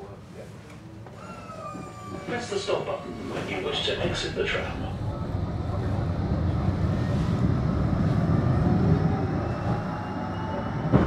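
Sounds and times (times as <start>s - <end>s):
tram wheels rumbling on rails: 1.0s - 11.0s.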